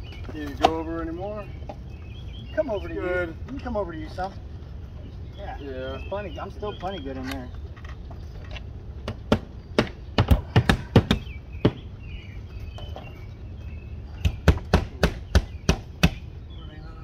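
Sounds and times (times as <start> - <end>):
hammer striking nails: 9.0 - 11.8, 14.2 - 16.2.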